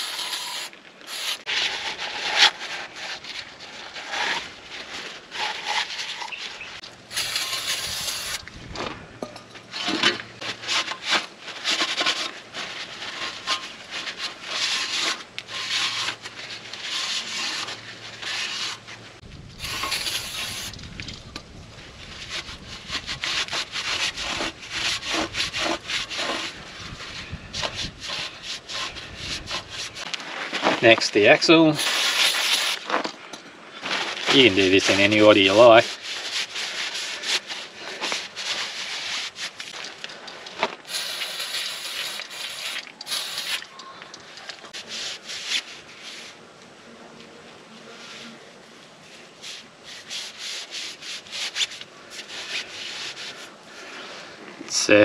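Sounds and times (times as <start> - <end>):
aerosol spray bursts: 31.8 - 32.8, 40.9 - 43.6.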